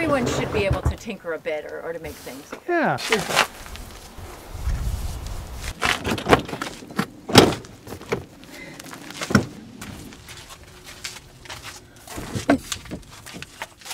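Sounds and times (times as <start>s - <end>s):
knocks and clatters: 5.8s - 13.9s.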